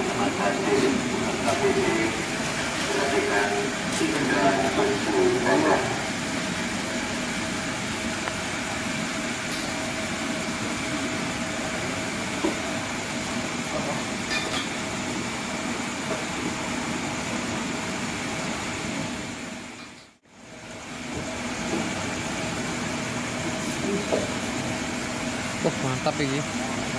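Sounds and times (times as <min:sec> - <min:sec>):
background din with faint hums: 0:00.0 - 0:26.9.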